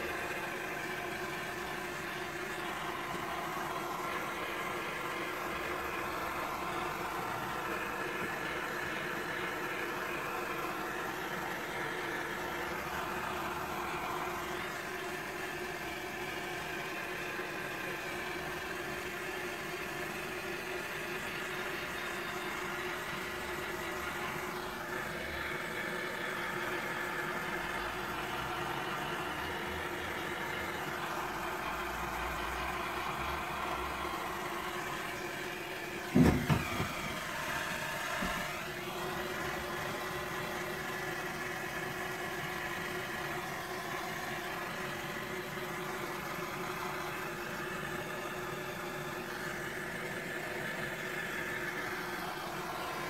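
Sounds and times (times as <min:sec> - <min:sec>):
blowtorch hissing: 0:20.1 - 0:49.9
sharp knocks: 0:36.2 - 0:37.1.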